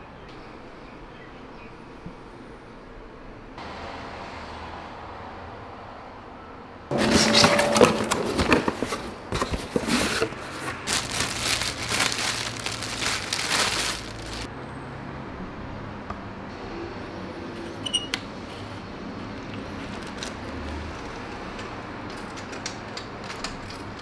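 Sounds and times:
cardboard handling: 6.9 - 14.5
plastic bag crinkling: 6.9 - 14.5.

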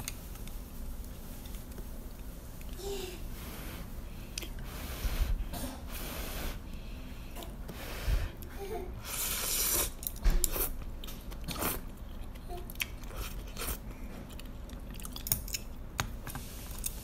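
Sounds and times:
person slurping noodles: 9.0 - 10.0
chewing with clicks and smacks: 9.9 - 17.0.

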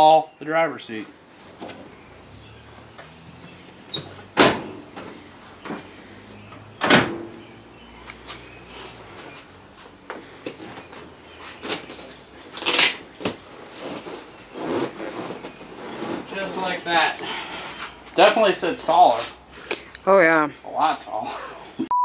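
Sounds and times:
seat clunking into mounts: 2.9 - 5.9
scraping rustle: 10.6 - 18.1.

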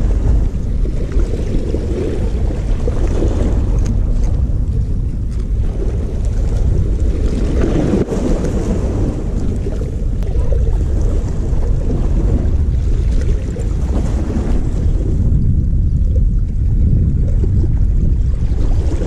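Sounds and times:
waves washing against rocks: 0.0 - 19.0
wind buffeting microphone: 0.0 - 19.0.

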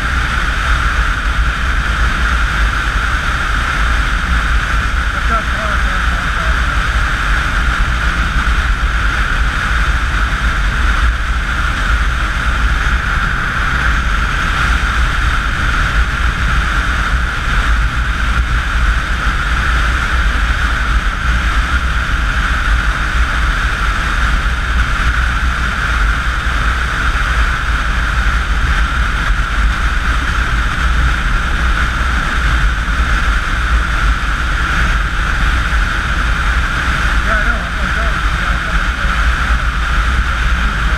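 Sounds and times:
motorcycle engine drone: 0.0 - 40.9
wind rushing on microphone: 0.0 - 40.9.

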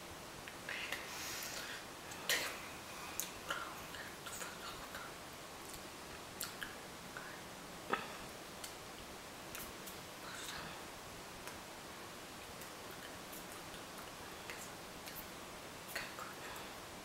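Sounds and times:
mouth clicks: 6.4 - 6.8.

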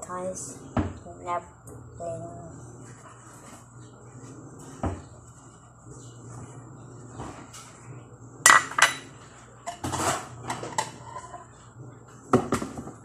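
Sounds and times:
dishes clattering in sink: 8.4 - 11.5.

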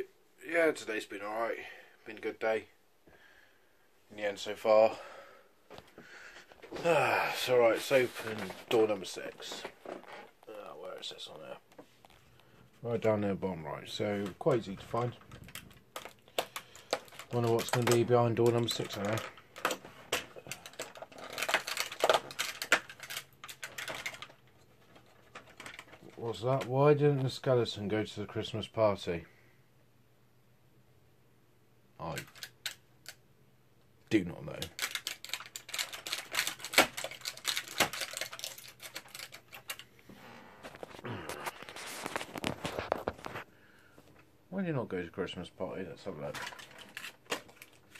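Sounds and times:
cardboard tearing and crackling: 15.5 - 24.3, 34.6 - 39.8
rapid clicking and tapping: 34.6 - 39.8.

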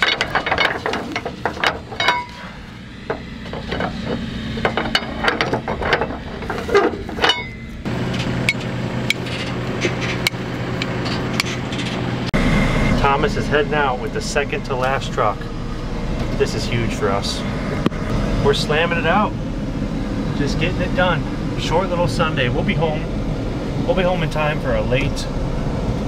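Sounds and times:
metal knocks: 0.0 - 12.0
engine hum: 0.0 - 26.0.

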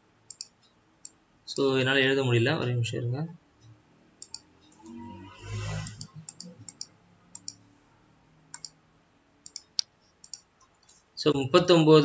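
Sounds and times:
computer mouse clicking: 0.3 - 1.2, 4.2 - 4.9, 5.8 - 7.6, 8.5 - 8.8, 9.4 - 10.5.

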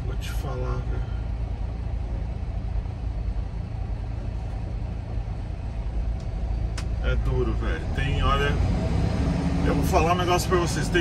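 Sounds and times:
diesel engine rumbling: 0.0 - 11.0.

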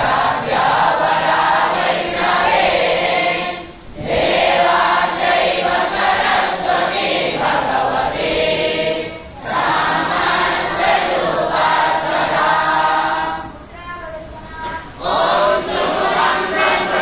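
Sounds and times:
boys chanting in unison: 0.0 - 17.0.

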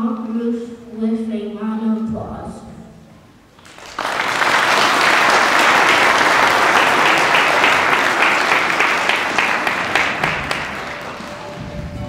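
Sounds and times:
audience applauding: 3.6 - 12.0.

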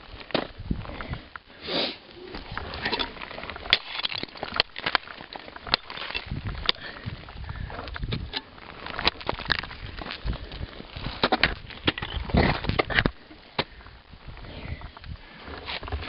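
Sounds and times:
person breathing: 0.8 - 2.3, 6.7 - 8.0, 13.0 - 15.9
ice tools striking ice: 3.7 - 5.0.

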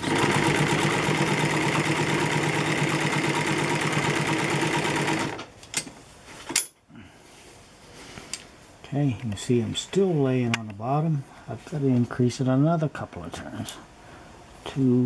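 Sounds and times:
industrial sewing machine running: 0.0 - 5.4.

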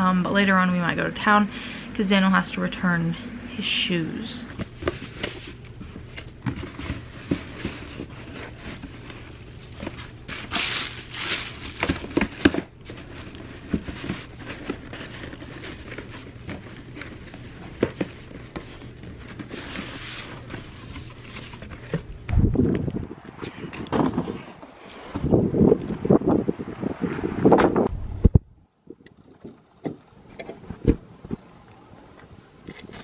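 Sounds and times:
cardboard knocking and scraping: 4.6 - 10.8, 11.7 - 22.9, 23.5 - 25.3
plastic crinkling: 4.7 - 22.1
wind buffeting microphone: 22.2 - 29.6.

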